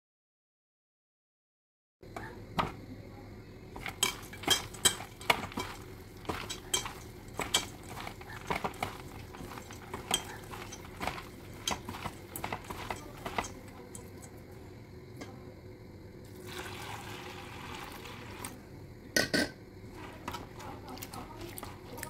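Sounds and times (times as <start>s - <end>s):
wet grains rattling in metal bowl: 3.8s - 14.4s, 19.9s - 22.0s.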